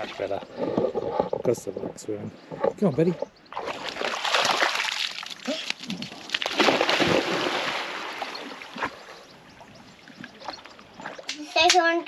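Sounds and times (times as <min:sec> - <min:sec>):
water sloshing from paddling: 0:00.0 - 0:11.4
dog splashing in water: 0:03.5 - 0:09.0.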